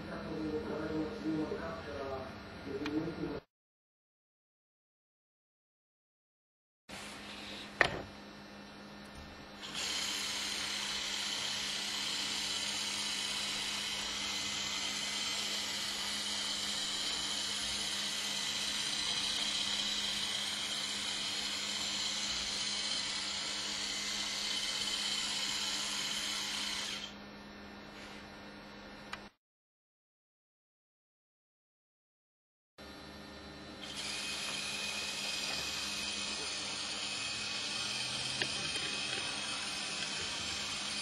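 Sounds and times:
small electric motors whining: 9.6 - 27.2, 33.6 - 41.0
click: 29.1 - 29.3.

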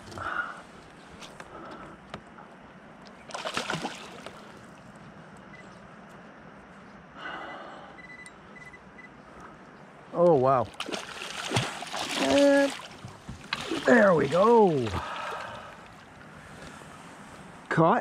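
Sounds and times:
fish thrashing and splashing water: 3.2 - 4.7, 10.7 - 16.1.

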